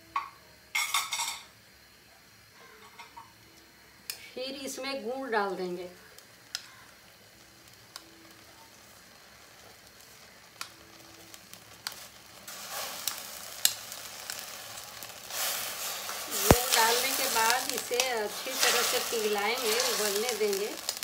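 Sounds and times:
water and ghee sizzling: 0:00.0 - 0:21.0.

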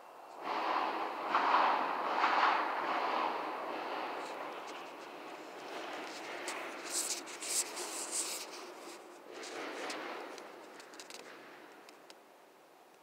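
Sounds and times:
rustling and scraping handling noise: 0:04.2 - 0:12.1.

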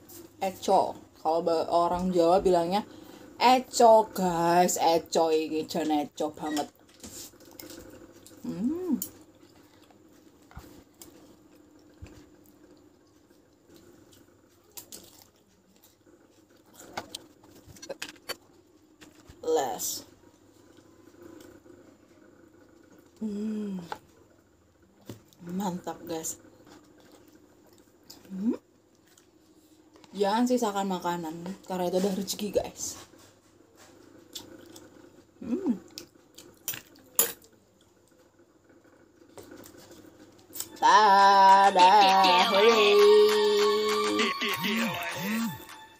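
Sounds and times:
quiet chewing: 0:06.8 - 0:19.4, 0:26.6 - 0:30.1, 0:33.1 - 0:38.4
person humming: 0:08.4 - 0:09.1, 0:35.4 - 0:35.8, 0:40.8 - 0:45.8.

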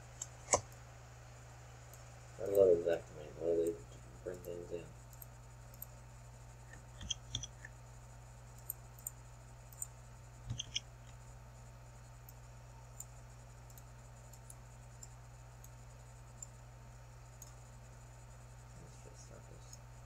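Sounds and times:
steady low hum: 0:00.0 - 0:20.0
computer mouse clicking: 0:06.7 - 0:07.7, 0:10.5 - 0:10.8.

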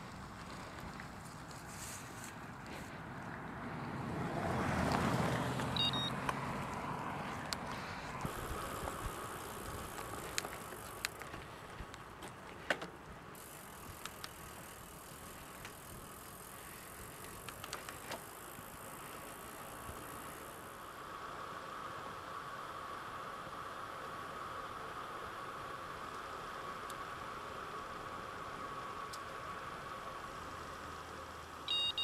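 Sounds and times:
tyres hissing on tarmac: 0:00.0 - 0:03.8, 0:05.0 - 0:11.9, 0:12.6 - 0:32.0
bike clicks and rattles: 0:04.9 - 0:20.7.

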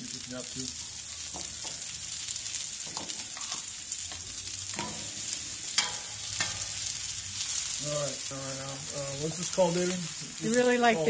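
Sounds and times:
vegetables sizzling in oil: 0:00.0 - 0:11.0
metal tongs clicking on griddle: 0:05.8 - 0:06.7.

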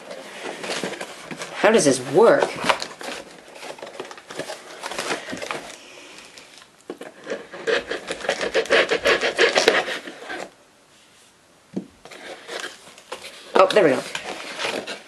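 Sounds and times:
hands scraping cardboard box: 0:07.1 - 0:10.5, 0:12.0 - 0:15.0.

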